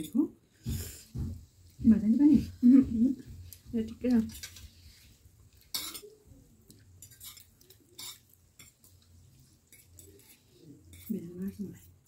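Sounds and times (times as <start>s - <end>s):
forks clinking on plates: 5.7s - 6.2s, 7.0s - 8.9s, 9.7s - 11.6s.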